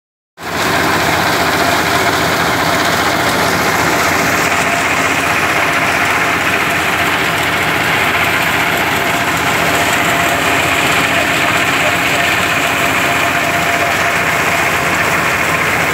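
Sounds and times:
small diesel engine running: 0.4s - 15.9s
thresher threshing straw: 0.4s - 15.9s.

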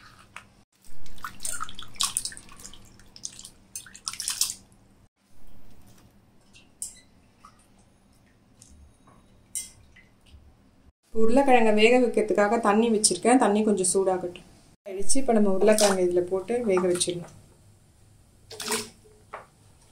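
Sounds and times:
water splashing in steel bowl: 0.8s - 4.8s, 15.6s - 17.2s.

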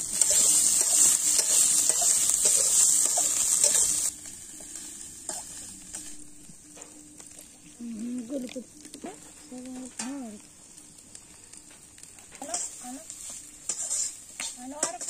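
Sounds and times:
metal spatula scraping pan: 0.0s - 4.1s, 12.4s - 15.0s
onions sizzling in oil: 0.0s - 15.0s.

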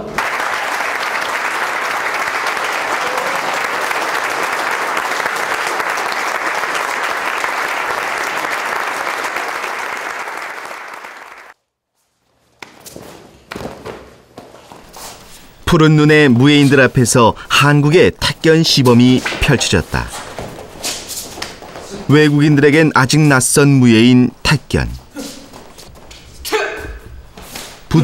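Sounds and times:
people applauding: 0.0s - 11.6s
faint knocks and shuffles: 18.8s - 22.2s, 24.9s - 27.9s.

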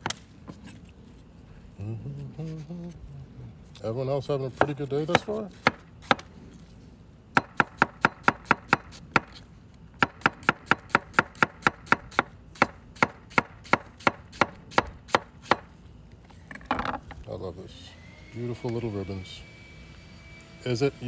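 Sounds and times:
knife chopping onion on board: 4.5s - 6.3s, 7.4s - 9.4s, 10.0s - 15.7s.

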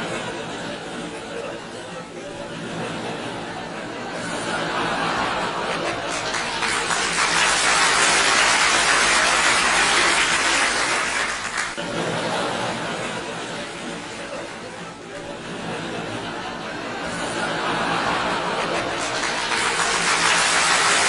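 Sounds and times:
audience laughter: 0.0s - 21.0s
applause: 5.6s - 11.8s, 18.2s - 21.0s.

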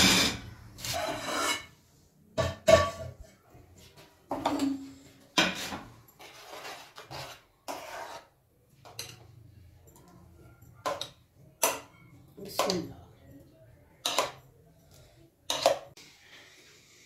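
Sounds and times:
metal spoon scraping a pan: 0.0s - 3.3s, 5.4s - 9.3s.

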